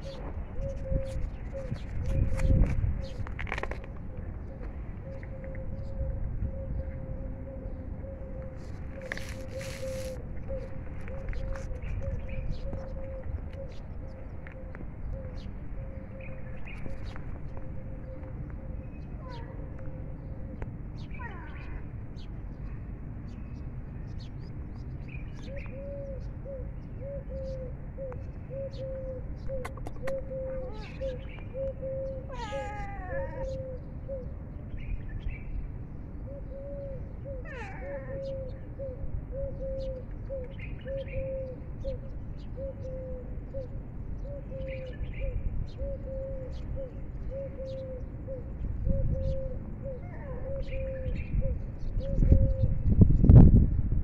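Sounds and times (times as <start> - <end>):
cat meowing: 21.2 - 21.8, 30.6 - 31.1, 32.2 - 33.6, 37.4 - 38.3, 50.0 - 50.7.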